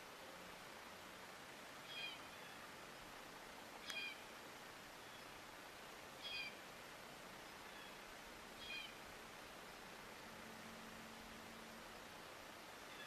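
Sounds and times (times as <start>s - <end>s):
background hiss: 0.0s - 13.0s
short high-pitched animal calls: 1.9s - 2.6s, 3.8s - 4.2s, 6.2s - 6.6s, 8.6s - 9.0s.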